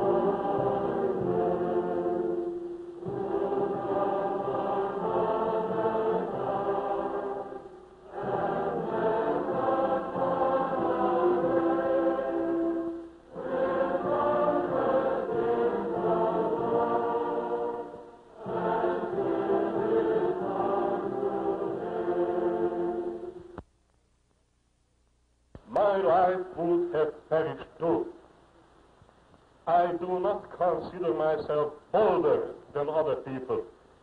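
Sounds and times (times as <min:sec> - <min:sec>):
choir singing: 0:00.0 - 0:23.6.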